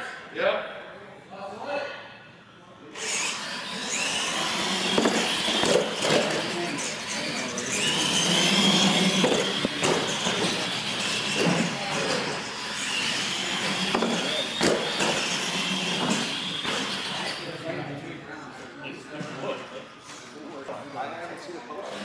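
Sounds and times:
toy truck electric motors whining: 3.0s - 17.6s
sharp knocks: 13.9s - 15.2s.

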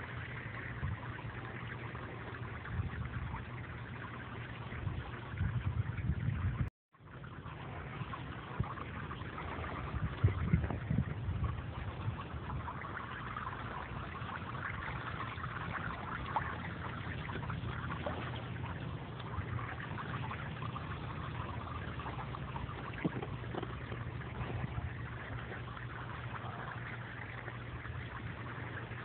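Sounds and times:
water splashing into pool: 0.0s - 29.0s
low bumps: 16.8s - 25.8s.

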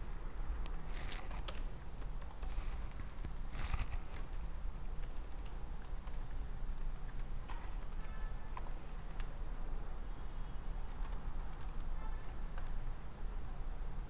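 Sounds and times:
keyboard typing clicks: 1.2s - 2.5s, 5.0s - 9.3s, 11.0s - 12.8s.

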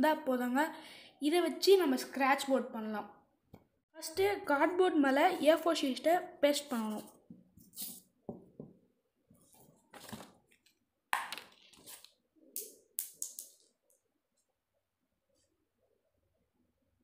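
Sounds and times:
cardboard and paper rustling: 9.4s - 10.7s, 11.5s - 12.1s.

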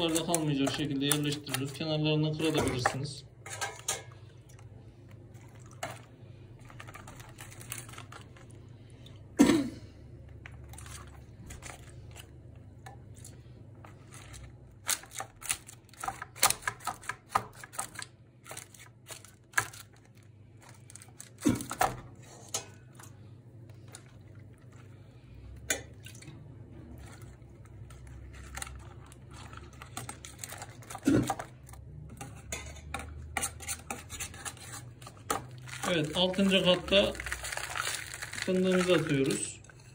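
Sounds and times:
dry wafer sheets crinkling: 0.0s - 2.8s, 34.0s - 39.9s
milk being ladled: 0.0s - 14.8s, 22.5s - 39.9s.

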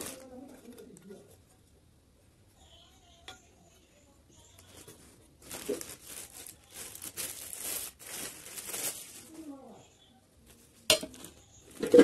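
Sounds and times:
plastic wrapping crinkling: 0.0s - 1.2s, 4.5s - 9.8s.

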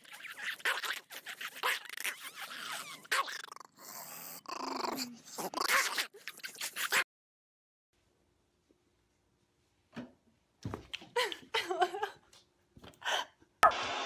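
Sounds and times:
dog growling and grumbling: 3.0s - 6.2s.

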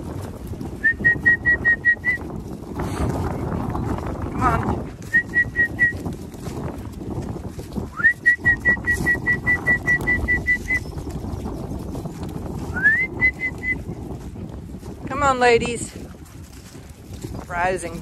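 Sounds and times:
low wind rumble: 0.0s - 18.0s
whistled high pips: 8.0s - 10.9s.

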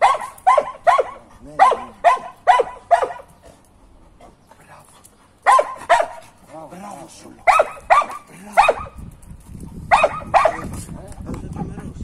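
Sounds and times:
dog barking: 0.0s - 3.3s, 5.4s - 6.3s, 7.4s - 8.9s, 9.9s - 10.7s.

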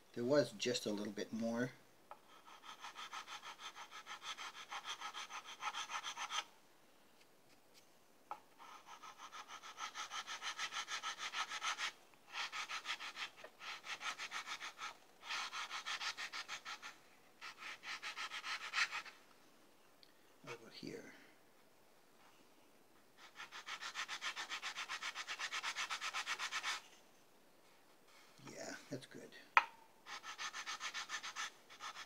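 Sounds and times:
sanding block rubbing wood: 2.3s - 6.5s, 8.6s - 19.1s, 23.2s - 26.8s, 30.1s - 32.0s.

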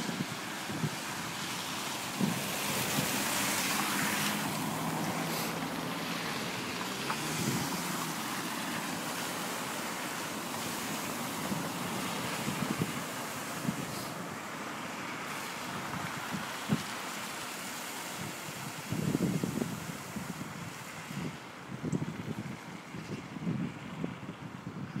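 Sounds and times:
car passing: 0.0s - 18.7s
tyres spraying flood water: 0.0s - 24.8s
low engine hum: 0.0s - 25.0s.

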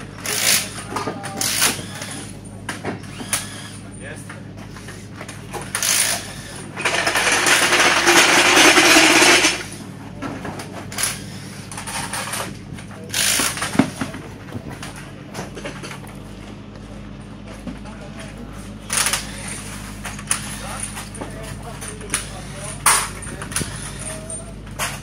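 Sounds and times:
pneumatic impact wrench rattling: 0.1s - 2.4s, 3.0s - 3.9s, 5.6s - 9.8s, 10.9s - 12.5s, 13.1s - 14.1s, 18.9s - 21.2s, 22.0s - 25.0s.

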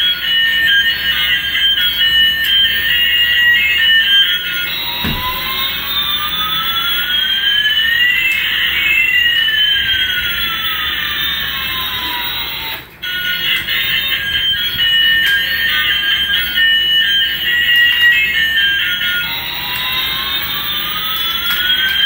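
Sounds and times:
toy jet engine whines: 0.0s - 22.0s
low thud: 5.0s - 5.7s.

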